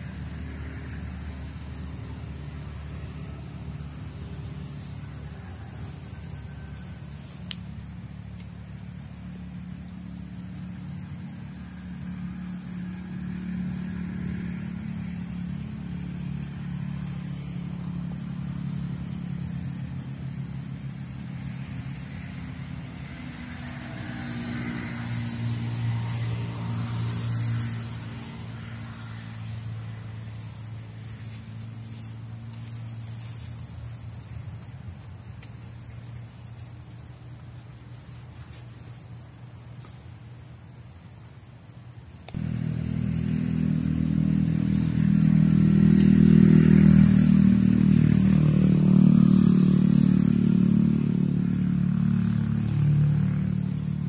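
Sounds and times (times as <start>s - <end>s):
distant motor engine: 0.0s - 41.2s, 42.2s - 54.0s
high-pitched insect drone: 0.0s - 54.0s.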